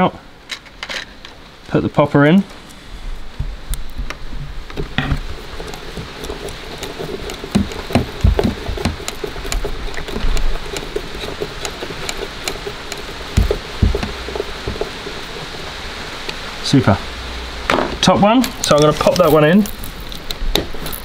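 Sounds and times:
steady hiss: 0.0 - 21.0
light irregular ticks: 3.6 - 16.4, 18.4 - 21.0.

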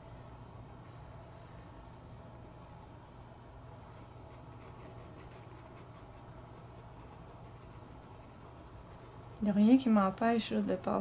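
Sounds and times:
pencil scratching on paper: 4.3 - 11.0.

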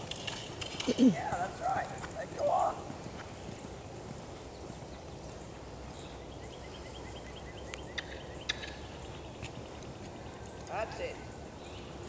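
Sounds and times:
low outdoor background noise: 0.0 - 12.0
bird chirping: 0.5 - 12.0.

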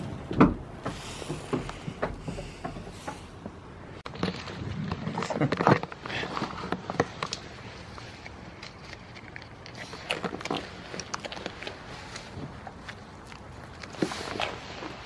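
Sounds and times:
goat crunching dry treats: 4.0 - 15.0.

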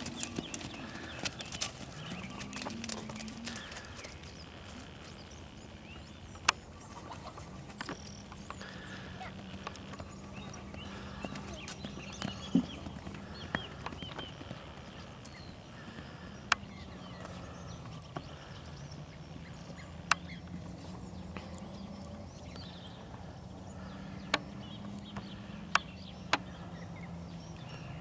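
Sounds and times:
hoofbeats on grass: 0.0 - 6.2, 6.8 - 23.2.

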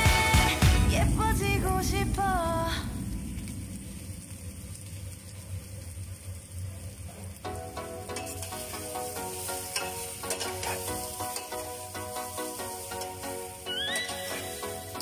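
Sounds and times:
background music: 0.0 - 2.3, 7.5 - 15.0
steady sizzle: 0.0 - 15.0
spoon clinking on pot: 9.7 - 11.6.

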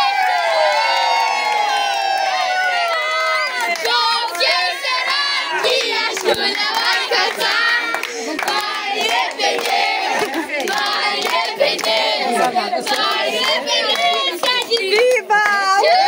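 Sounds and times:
handclaps: 0.8 - 15.9
crowd singing together: 3.2 - 16.0.

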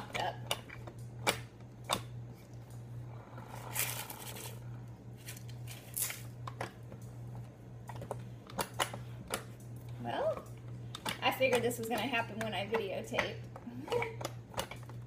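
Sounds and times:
low steady hum: 0.0 - 15.0
scraping and rustling: 3.4 - 6.3.

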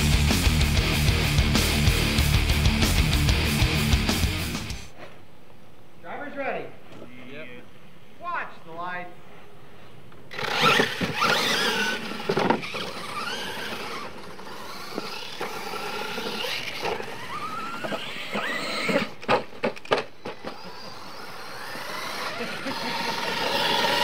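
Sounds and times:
electric motors whining: 10.3 - 24.0.

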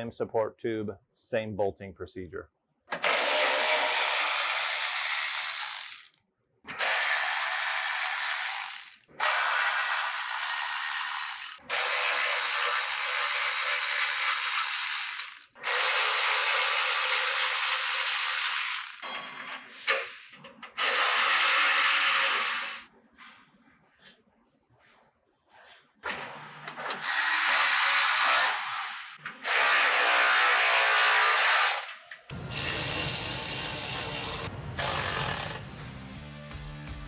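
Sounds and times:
electric ratchet running: 2.9 - 19.0, 20.8 - 22.9, 27.0 - 28.6, 29.3 - 35.6.

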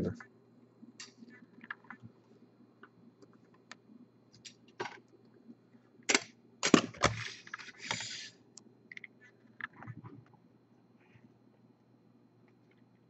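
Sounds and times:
plastic sliding on a tabletop: 7.5 - 8.4.

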